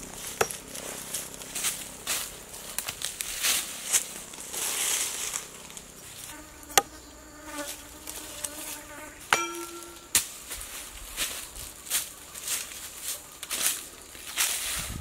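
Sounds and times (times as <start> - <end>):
insect buzzing: 0.0 - 10.2
knife hitting tree trunk: 0.2 - 0.7, 6.7 - 7.0, 9.3 - 10.3
short ringing tone: 9.4 - 10.2.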